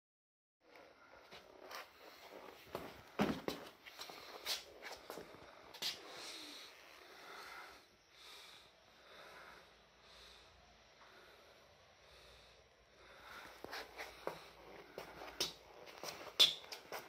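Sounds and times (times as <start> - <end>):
heavy out-of-breath breathing: 3.8 - 17.0.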